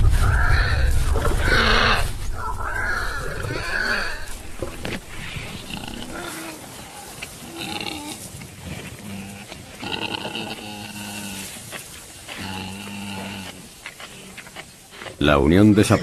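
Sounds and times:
warthog squealing: 0.2 - 8.2.

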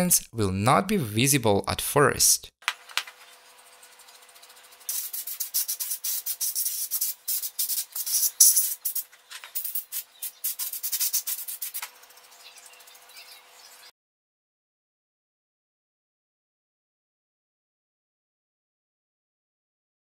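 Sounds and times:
brush scrubbing circuit board: 3.1 - 13.8.

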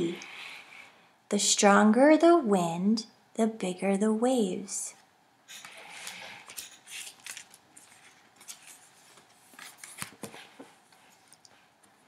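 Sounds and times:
cardboard pages turning: 5.6 - 11.5.

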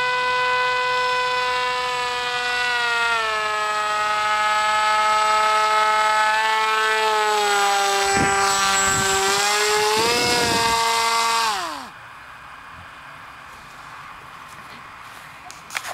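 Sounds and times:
paraglider engine and propeller droning: 0.0 - 12.1.

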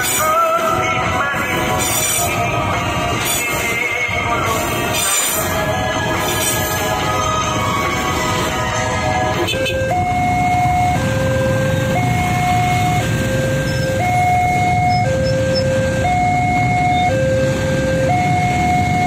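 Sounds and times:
motorcycle engines rumbling: 0.0 - 19.0
two-tone crossing alarm: 9.3 - 19.0.

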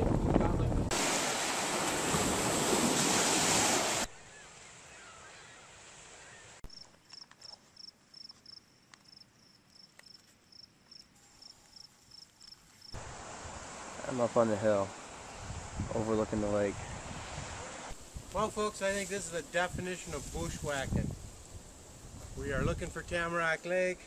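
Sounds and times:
water noise: 0.0 - 6.8, 12.7 - 24.0
wind: 0.0 - 24.0.

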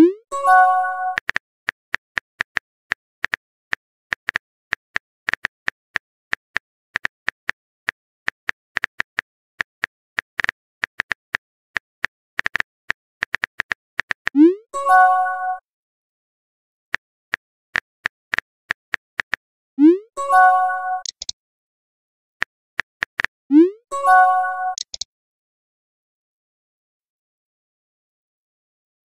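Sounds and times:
keyboard typing clicks: 20.8 - 21.4, 24.5 - 25.1.

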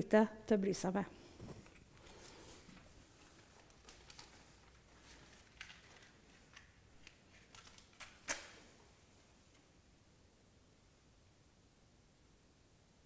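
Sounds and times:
faint clicks and rustles: 1.3 - 9.7.

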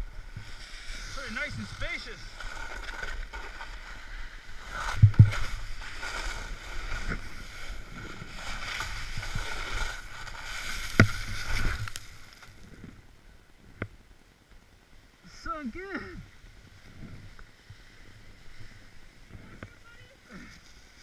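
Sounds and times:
snowboard scraping over snow: 0.0 - 13.0
knocks and thumps: 5.0 - 5.4.

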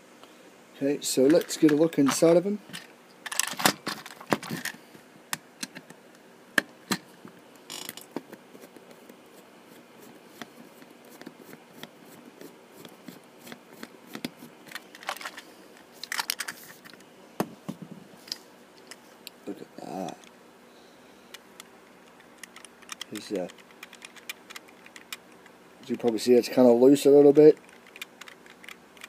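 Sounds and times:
plastic toy clicking: 27.6 - 29.0.

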